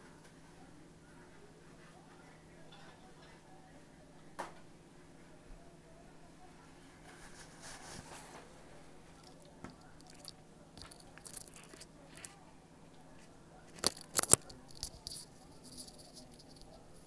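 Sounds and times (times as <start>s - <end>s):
earbud handling rustles: 9.2s - 12.4s, 13.7s - 16.8s
small clicks: 13.8s - 16.8s.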